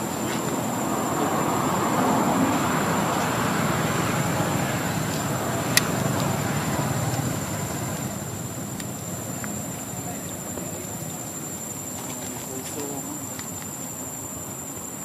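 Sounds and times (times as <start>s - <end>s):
vehicle passing: 0.0s - 11.8s.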